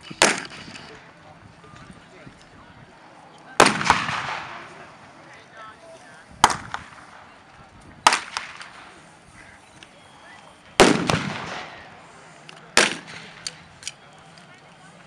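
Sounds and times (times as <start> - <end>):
rifles firing blank rounds: 0.1 - 1.0, 3.6 - 4.7, 8.1 - 8.9, 10.8 - 11.8, 12.7 - 14.0.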